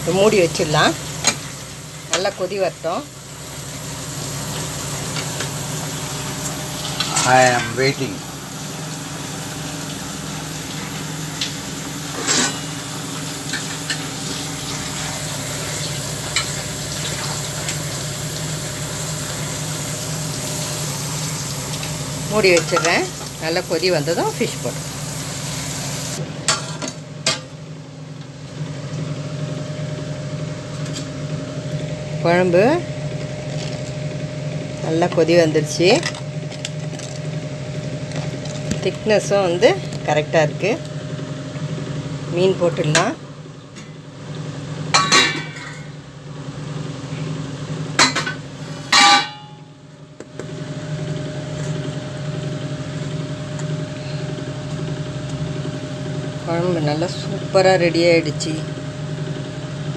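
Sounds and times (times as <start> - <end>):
low motor hum: 0.0 - 59.9
kitchen utensils clinking: 6.4 - 8.2, 12.1 - 12.8, 21.7 - 24.8, 45.0 - 45.9, 48.0 - 49.6
curry bubbling at a boil: 8.1 - 26.2
steel lid clinking: 21.8 - 23.3, 44.9 - 45.9, 48.0 - 49.6.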